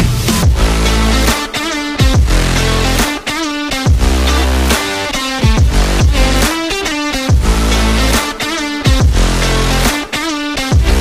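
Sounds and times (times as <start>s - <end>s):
heavy sustained bass: 0.0s - 1.3s, 2.0s - 3.0s, 3.9s - 4.8s, 5.4s - 6.5s, 7.3s - 8.2s, 9.0s - 9.9s
electronic dance music: 0.0s - 11.0s.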